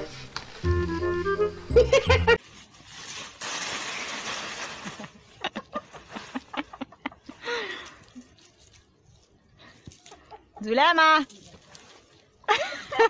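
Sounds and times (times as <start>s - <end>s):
dry leaves rustling: 0.0s - 1.1s, 2.3s - 10.2s, 10.8s - 12.6s
music: 0.0s - 2.4s
footsteps crunching through leaves: 2.4s - 5.4s, 11.2s - 12.4s.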